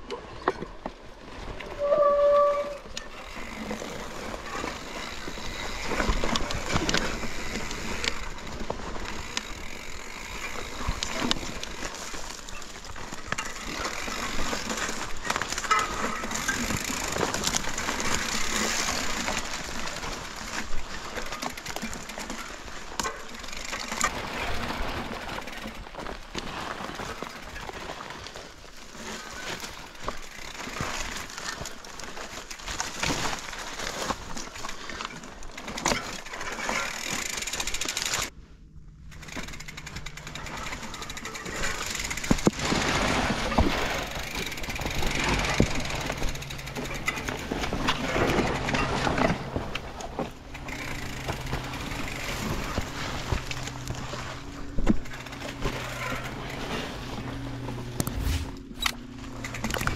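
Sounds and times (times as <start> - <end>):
bike knocking and rattling: 0.0 - 59.9
tyres crunching over gravel: 0.3 - 38.4, 39.0 - 59.9.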